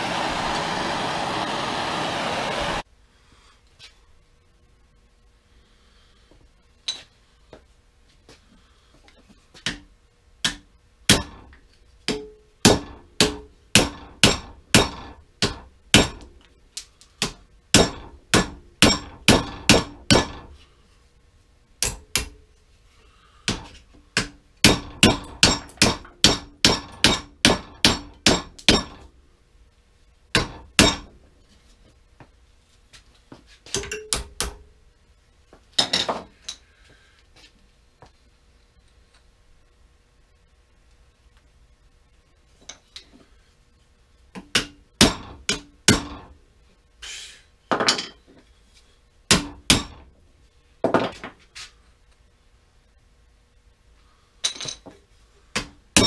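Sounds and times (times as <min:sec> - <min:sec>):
hammer striking metal bar: 0:09.7 - 0:16.4, 0:17.2 - 0:20.6, 0:21.8 - 0:22.4, 0:23.5 - 0:29.1, 0:30.3 - 0:31.2, 0:33.7 - 0:34.7, 0:44.4 - 0:46.4, 0:49.3 - 0:50.1.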